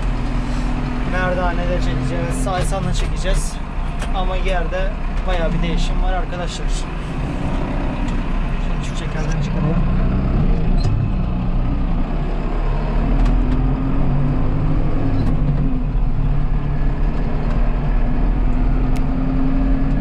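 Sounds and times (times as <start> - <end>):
tractor diesel engine running: 0.0 - 12.7.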